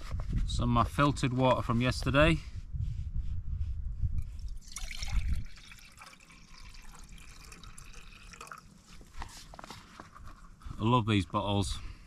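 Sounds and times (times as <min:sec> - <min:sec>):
water pouring into metal pot: 0:04.4 - 0:08.9.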